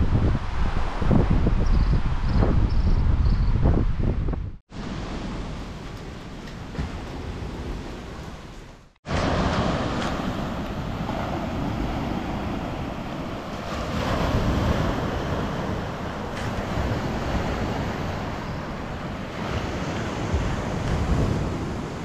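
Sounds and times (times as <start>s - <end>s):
wind rumbling on microphone: 0.0s - 22.0s
sea waves washing ashore: 4.7s - 22.0s.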